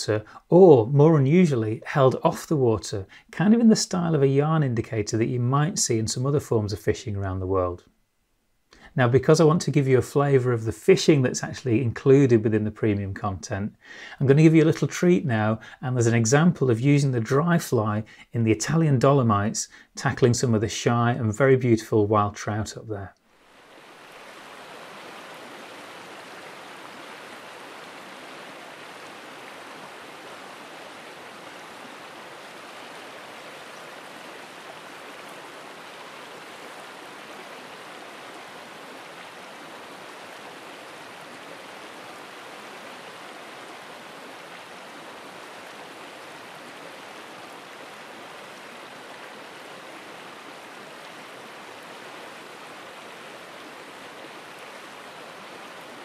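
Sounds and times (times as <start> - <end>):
stream flowing over stones: 23.3 - 56.0.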